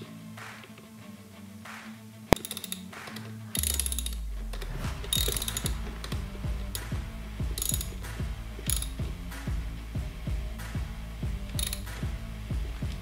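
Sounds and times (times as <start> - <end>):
ratchet driver clicking: 2.4 - 5.8, 7.6 - 8.0, 8.6 - 9.0, 11.5 - 12.0
low repeating thump: 4.7 - 13.0.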